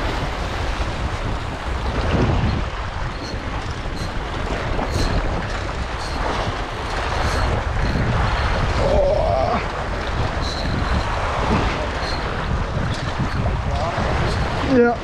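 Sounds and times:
waves washing against rocks: 0.0 - 15.0
wind buffeting microphone: 0.0 - 15.0.

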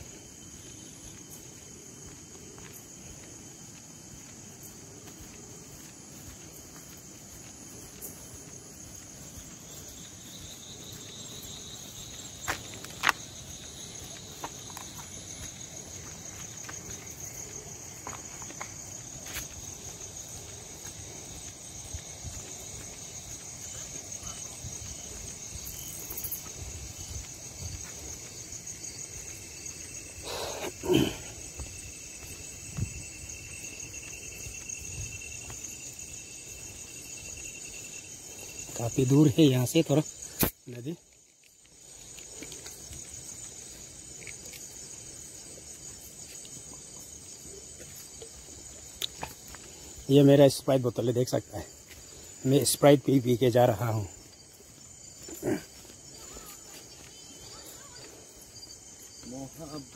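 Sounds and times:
crickets trilling: 0.0 - 59.9
footsteps on a path: 0.0 - 59.9.

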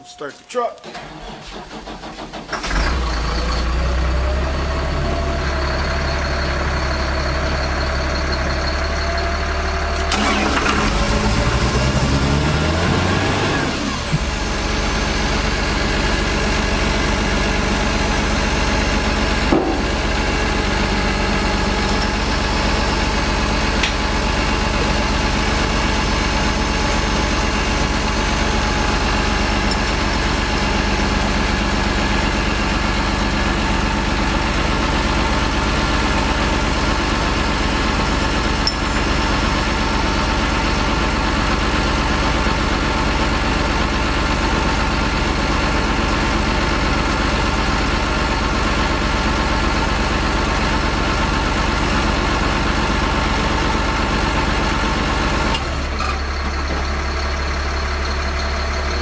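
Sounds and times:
truck engine idling and revving: 0.9 - 59.0.

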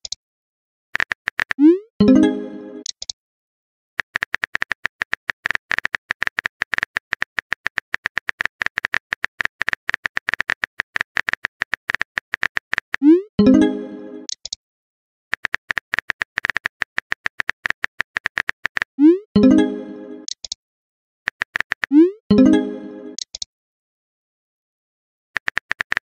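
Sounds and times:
message sent chime: 2.0 - 2.8, 13.4 - 14.3, 19.4 - 20.3, 22.3 - 23.2
keyboard typing clicks: 2.8 - 3.2, 4.0 - 13.1, 14.2 - 14.6, 15.3 - 18.9, 20.2 - 20.6, 21.3 - 23.5, 25.4 - 26.0.

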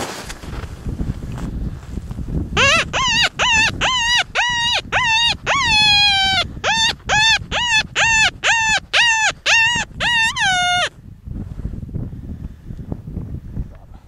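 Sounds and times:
predator call wailing cries: 2.6 - 10.9.

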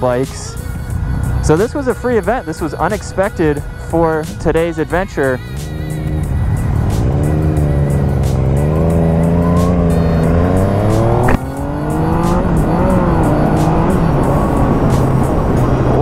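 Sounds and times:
motorcycle engine accelerating: 5.4 - 16.0.

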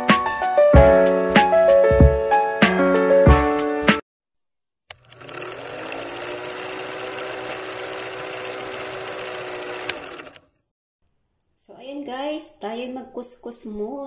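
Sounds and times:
film projector whirring clatter: 4.9 - 10.5.

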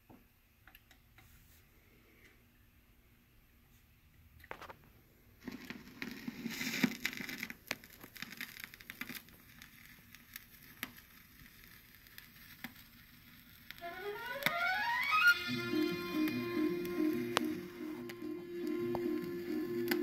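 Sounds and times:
vinyl surface hiss: 1.1 - 20.0
vinyl clicks and pops: 13.8 - 20.0
music with rising run: 13.9 - 20.0.

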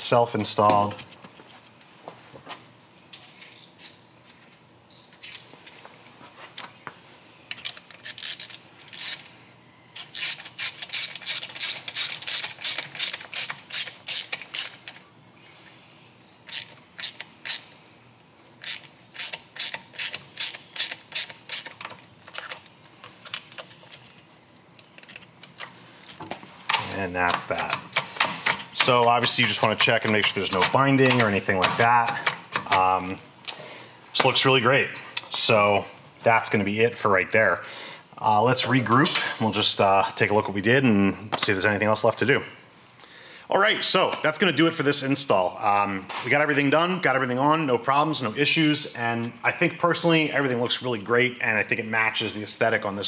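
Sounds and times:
hand ratchet clicking: 7.5 - 9.2, 10.2 - 15.0, 16.5 - 17.7, 18.6 - 23.7, 27.3 - 32.8.

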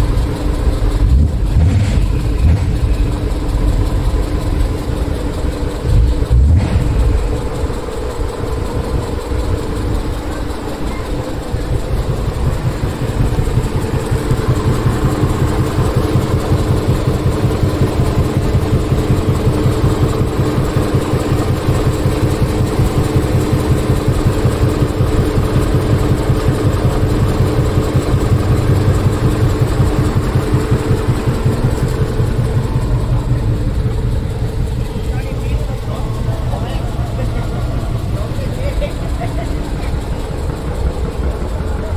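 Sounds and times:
truck diesel engine running: 0.0 - 41.9.

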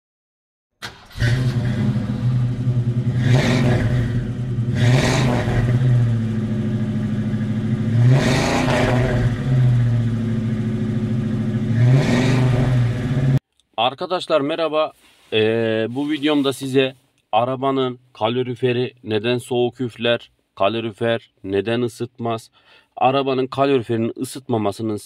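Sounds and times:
car engine revving: 0.8 - 13.4.

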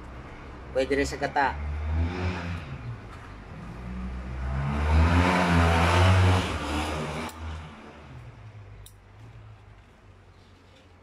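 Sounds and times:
vehicle engine passing by: 0.6 - 8.4.

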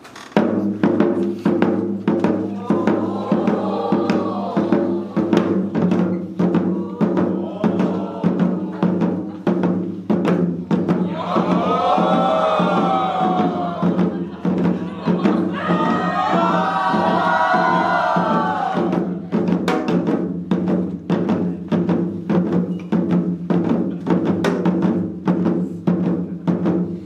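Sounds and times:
hourglass drums rhythm: 0.4 - 27.0
drawn-out vocal call: 2.5 - 5.8, 6.4 - 9.3.

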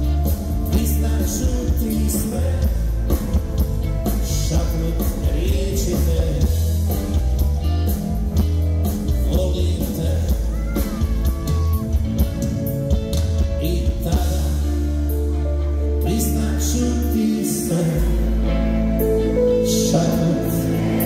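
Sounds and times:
steady drum beat: 0.0 - 14.8
bass: 0.0 - 21.0
electric guitar: 0.0 - 21.0
keyboards: 0.0 - 21.0
person singing lead vocal: 0.6 - 3.2, 4.1 - 6.8, 9.1 - 12.0, 13.4 - 15.2, 16.0 - 21.0.

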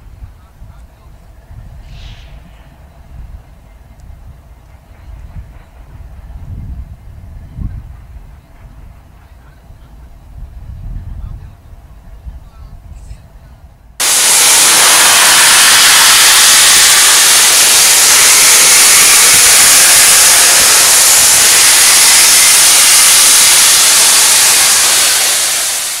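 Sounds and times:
steam hissing from locomotive: 1.6 - 3.7, 14.0 - 26.0.

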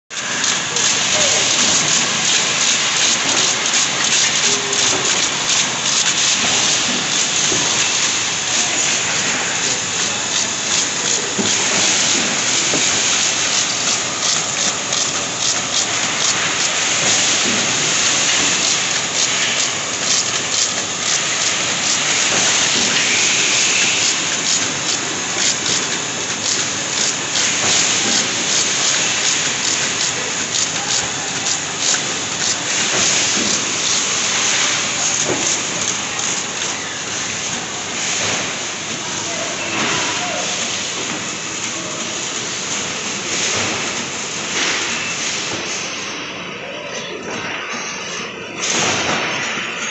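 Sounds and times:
labelling machine hiss: 0.2 - 38.3.

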